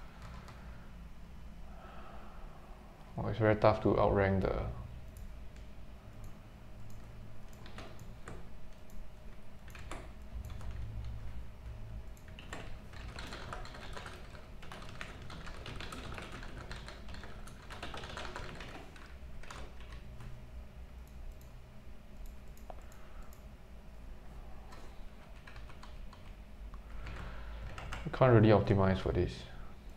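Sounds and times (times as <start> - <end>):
steady low hum: 0.0 - 29.9
typing on computer keyboard: 0.1 - 0.6, 6.9 - 9.0, 9.6 - 11.2, 12.1 - 20.3, 24.7 - 26.3, 27.0 - 28.1.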